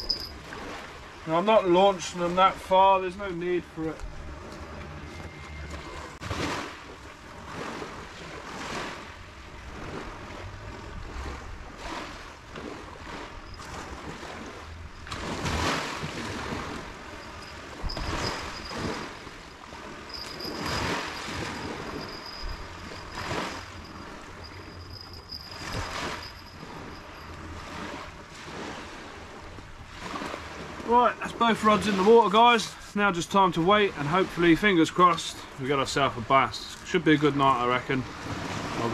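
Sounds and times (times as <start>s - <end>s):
faint high whine: 0.0s - 0.4s, 16.7s - 28.2s
wind gusting: 0.0s - 34.6s
small waves washing ashore: 0.0s - 38.9s.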